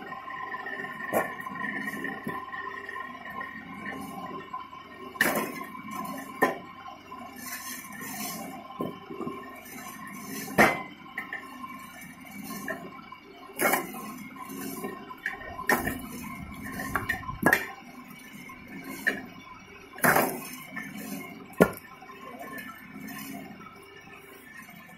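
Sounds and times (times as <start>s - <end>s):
log splitter humming: 15.2s - 17.8s.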